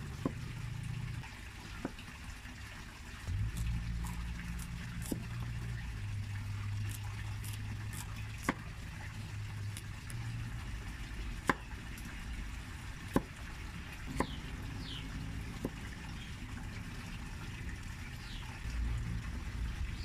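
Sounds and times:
low steady hum: 0:00.0 - 0:20.0
knife chopping on wooden block: 0:05.0 - 0:05.3, 0:07.4 - 0:08.6.

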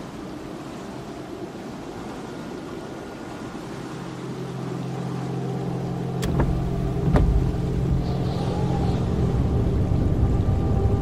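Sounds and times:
car engine and tyre noise: 0:05.5 - 0:11.0
sharp knocks: 0:06.2 - 0:07.5.

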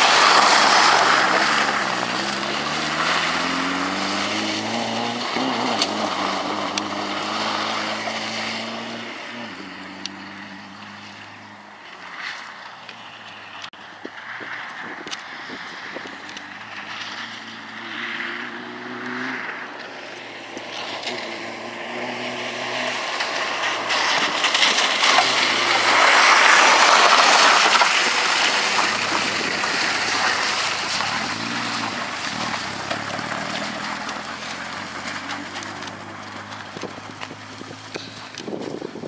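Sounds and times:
rally car engine revving: 0:00.0 - 0:13.6, 0:14.4 - 0:39.0
tyres hissing on wet gravel: 0:00.0 - 0:13.6, 0:15.4 - 0:39.0
stones ticking: 0:23.2 - 0:38.8.

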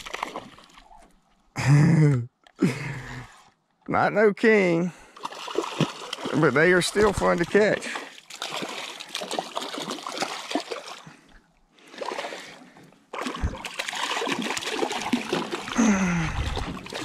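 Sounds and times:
fish thrashing and splashing: 0:00.0 - 0:01.2, 0:05.2 - 0:17.0
hard splash with low thump: 0:13.2 - 0:15.6.

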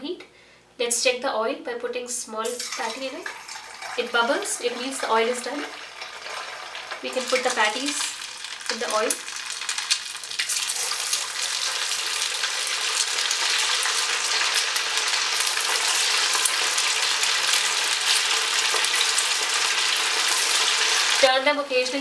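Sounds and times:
deep-frying sizzle in oil: 0:02.5 - 0:21.3.

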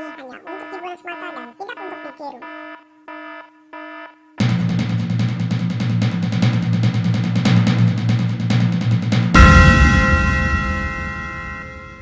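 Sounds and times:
electronic beep: 0:00.0 - 0:02.8
drum-heavy intro music: 0:04.4 - 0:12.0.

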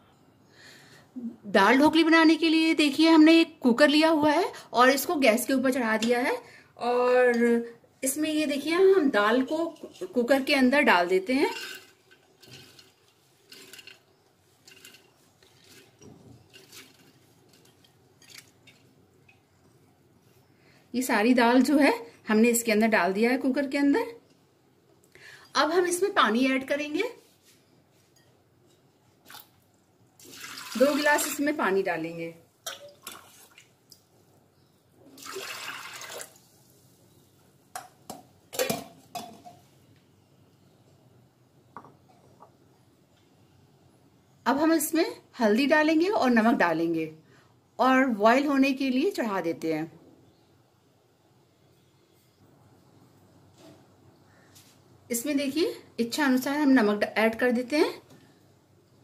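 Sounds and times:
wet lentils scraping a bowl: 0:11.5 - 0:17.9
water pouring and splashing: 0:30.2 - 0:31.5, 0:32.7 - 0:34.0, 0:35.1 - 0:36.7.

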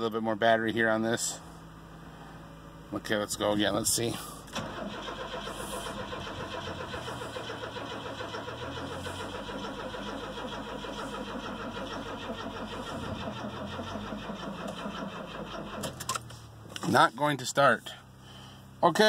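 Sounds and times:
starter cranking engine: 0:04.5 - 0:16.4.

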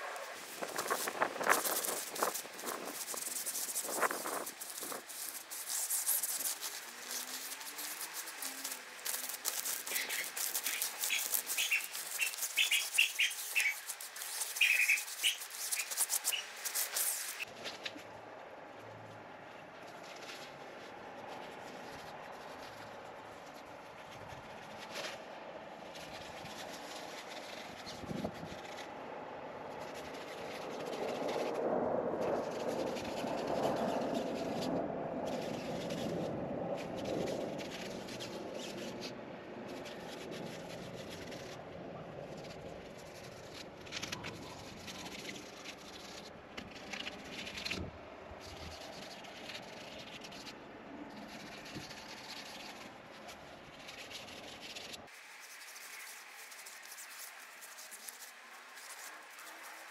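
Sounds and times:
hands rubbing tent fabric: 0:00.0 - 0:17.7, 0:51.2 - 0:59.9.

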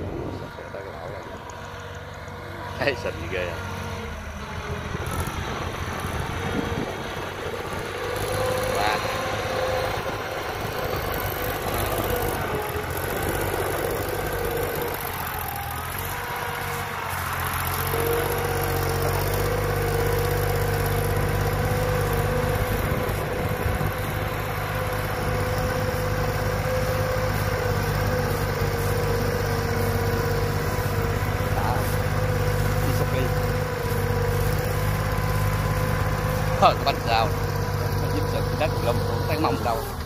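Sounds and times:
tractor engine running under load: 0:00.0 - 0:40.0.

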